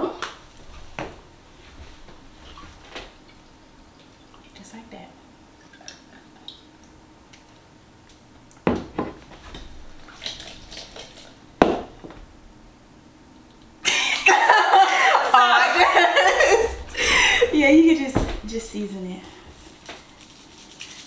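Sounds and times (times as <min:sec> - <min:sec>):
glass bottle knocking on counter: 0:11.6 - 0:12.2
people laughing: 0:13.9 - 0:17.7.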